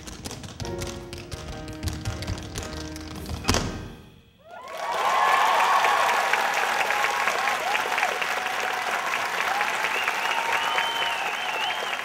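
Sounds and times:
crowd cheering and calling: 0:04.4 - 0:12.0
audience clapping: 0:04.5 - 0:12.0.

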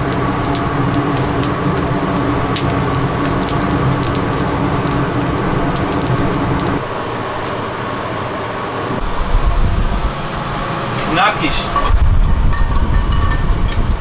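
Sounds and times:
charcoal crackling: 0:00.0 - 0:06.8
kitchen machine hum: 0:00.0 - 0:06.8
low thumps: 0:00.0 - 0:06.8.

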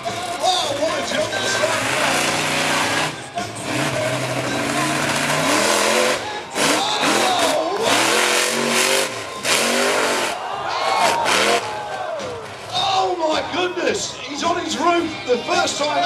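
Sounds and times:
truck engine revving: 0:00.0 - 0:11.7.

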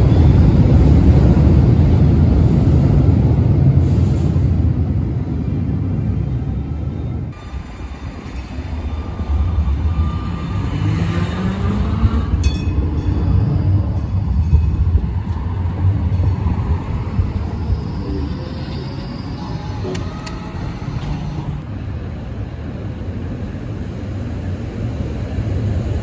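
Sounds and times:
tram wheels rumbling on rails: 0:00.0 - 0:26.0
tram motor whine: 0:06.3 - 0:21.7.

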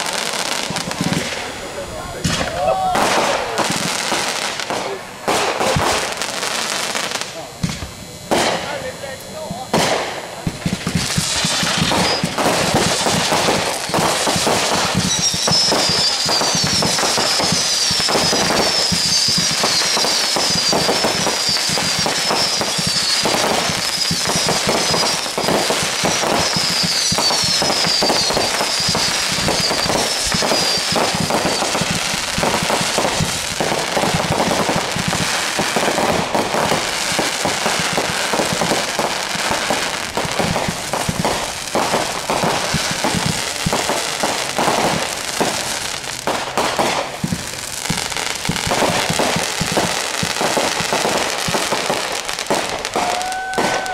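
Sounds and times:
fireworks bangs and crackling: 0:00.0 - 0:53.9
high falling whistles: 0:11.1 - 0:12.8, 0:13.4 - 0:33.4.

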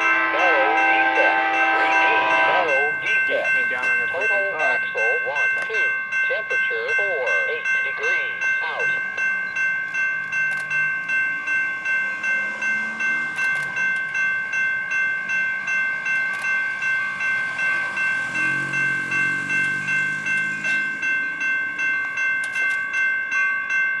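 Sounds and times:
low train rumble: 0:00.0 - 0:24.0
train bell ringing: 0:00.0 - 0:24.0.

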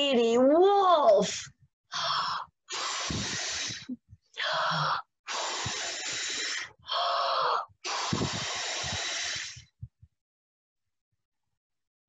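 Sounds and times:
woman blowing into microphone: 0:02.0 - 0:09.9.

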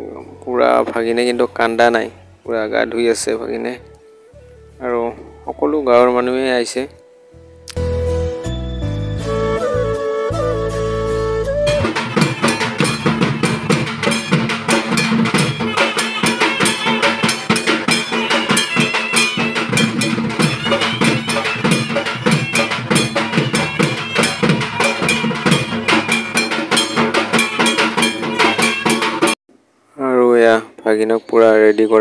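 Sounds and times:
held tone: 0:11.7 - 0:29.4
fast dense drumming: 0:11.8 - 0:29.4.

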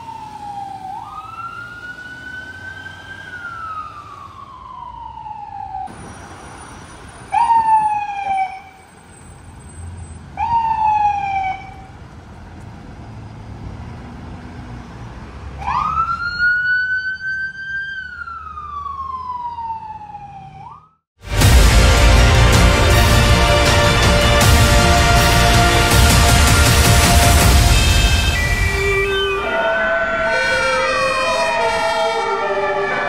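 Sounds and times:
siren wailing: 0:00.0 - 0:05.9, 0:07.3 - 0:08.8, 0:15.6 - 0:21.0, 0:25.4 - 0:33.0
siren blips: 0:27.4 - 0:33.0.

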